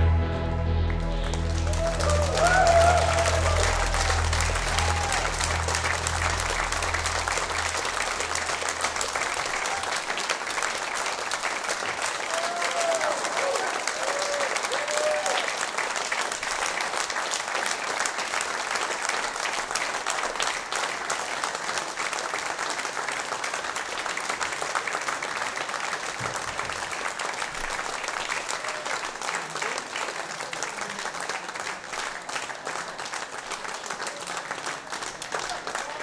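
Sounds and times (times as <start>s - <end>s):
audience applauding: 0.0s - 36.0s.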